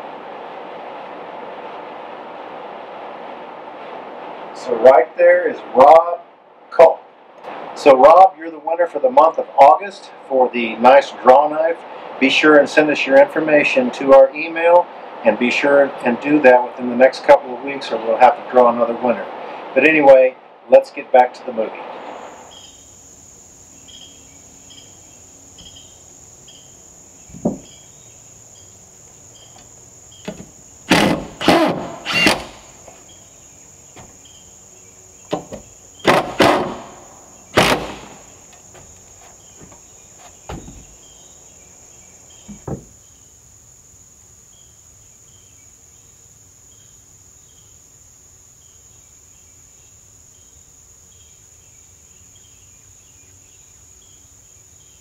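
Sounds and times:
insects droning: 0.0 - 55.0
insect chirp pulsing: 21.8 - 55.0
wooden knocks and thumps: 27.3 - 27.8, 29.5 - 33.0, 33.9 - 34.2, 35.3 - 37.0, 37.6 - 41.1, 42.4 - 43.0.

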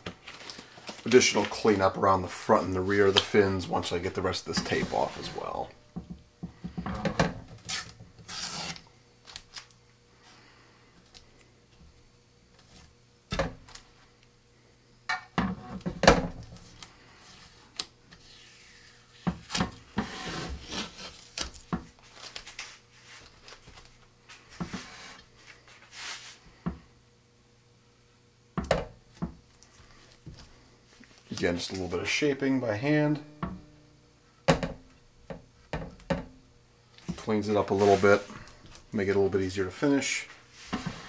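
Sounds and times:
tape peeling tears: 7.6 - 9.8.

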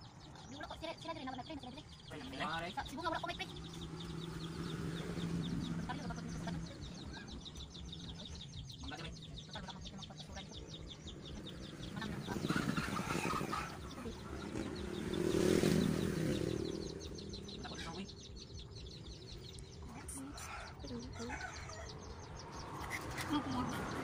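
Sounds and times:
chickens clucking: 0.0 - 24.0
rapid high-pitched chirping: 0.0 - 24.0.

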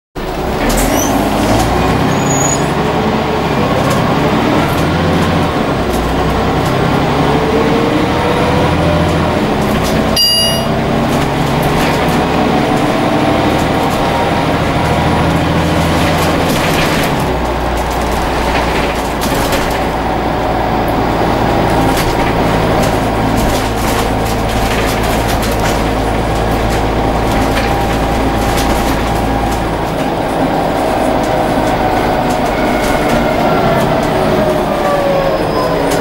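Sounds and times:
bus diesel engine: 0.2 - 36.0
brief high chime: 10.2 - 10.8.

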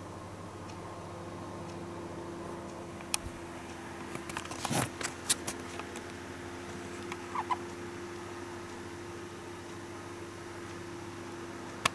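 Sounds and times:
low room hum: 0.0 - 11.9.

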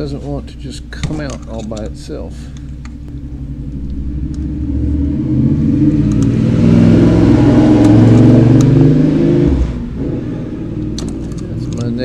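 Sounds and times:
motorcycle revving past: 3.2 - 10.8.

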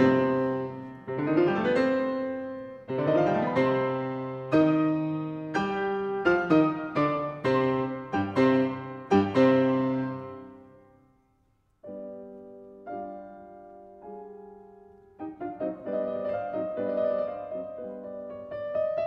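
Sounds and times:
piano music: 0.0 - 11.1, 11.8 - 19.0.

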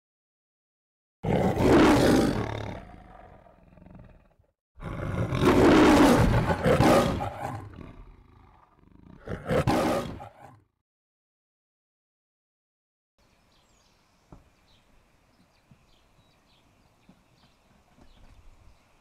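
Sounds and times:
lion roaring: 1.2 - 10.6.

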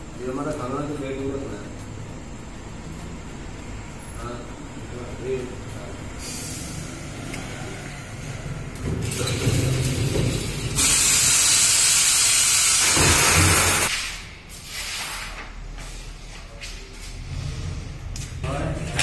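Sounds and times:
loud hiss of air: 6.2 - 7.1, 9.7 - 16.1.

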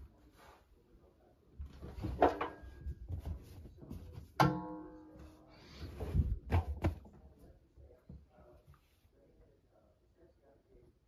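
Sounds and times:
knocks on metal drum ringing: 4.4 - 5.0.

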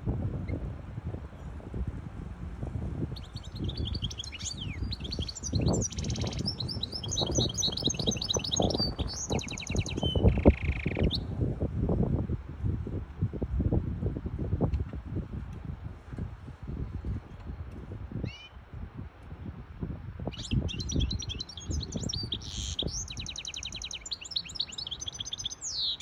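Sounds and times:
finch singing chirps and trills: 3.1 - 11.3, 16.8 - 18.6, 20.3 - 26.0.

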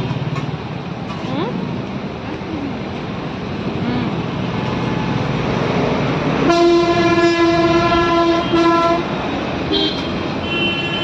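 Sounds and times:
road traffic: 0.0 - 11.0
vehicle horn honking: 6.4 - 9.1, 9.7 - 11.0.

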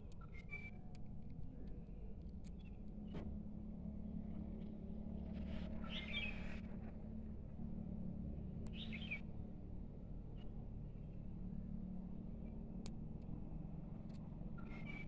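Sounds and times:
low rumble: 1.1 - 15.0
bird chirp: 8.7 - 9.2.

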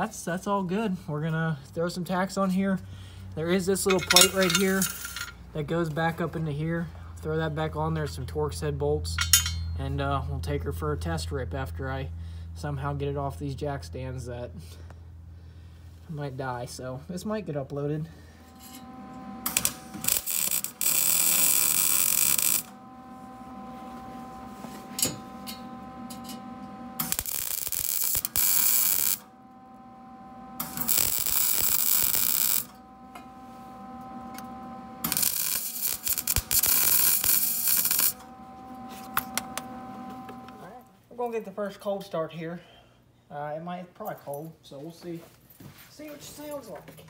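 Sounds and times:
steady hum: 0.0 - 7.8, 8.7 - 41.1
welder arc crackling: 3.8 - 5.3, 18.3 - 40.8.

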